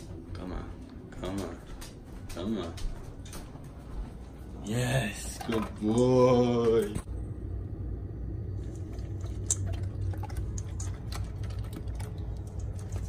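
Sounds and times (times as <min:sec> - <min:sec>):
low steady hum: 0:00.0 - 0:13.0
dog chewing food: 0:08.7 - 0:13.0.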